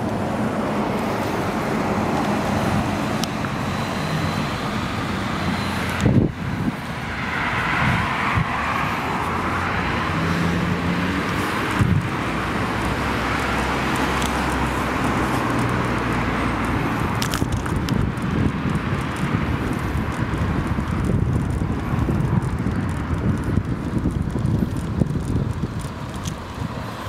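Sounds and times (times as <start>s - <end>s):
cars passing: 0.0s - 27.0s
wind on microphone: 1.0s - 27.0s.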